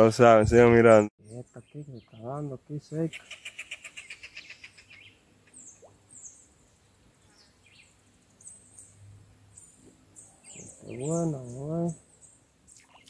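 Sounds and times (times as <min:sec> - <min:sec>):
high falling bird chirps: 0:01.2 - 0:13.0
bird pulsed trill: 0:07.3 - 0:13.0.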